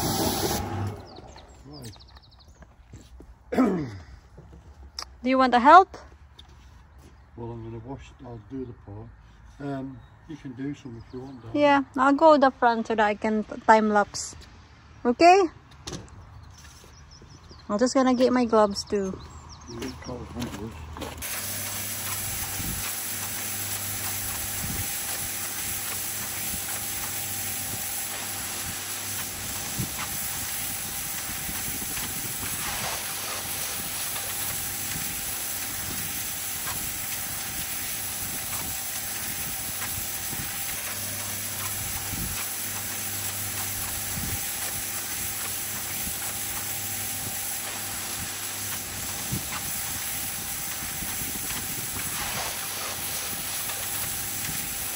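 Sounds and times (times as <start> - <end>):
machine hum: 0.0 - 1.8, 21.2 - 54.9
pressure washer jet hissing on stone: 0.0 - 1.9, 21.2 - 54.9.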